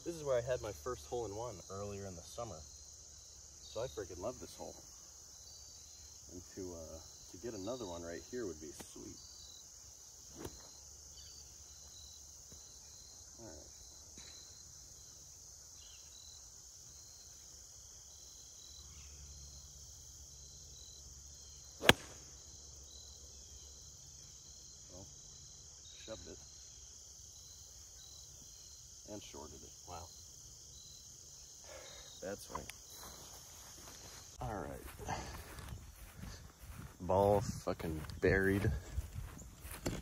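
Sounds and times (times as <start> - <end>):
insects chirring: 0.0 - 40.0
golf club striking ball: 21.8 - 22.3.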